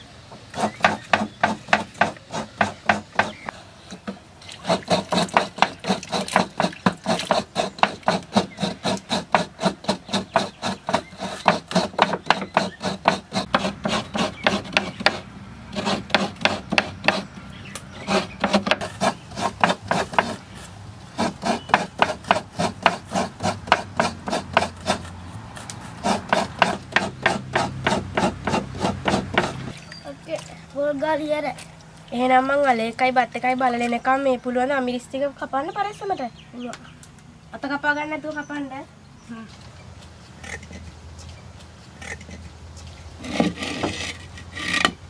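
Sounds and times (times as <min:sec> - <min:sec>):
coconut scraper rasping: 0:00.4 - 0:29.8, 0:43.2 - 0:45.0.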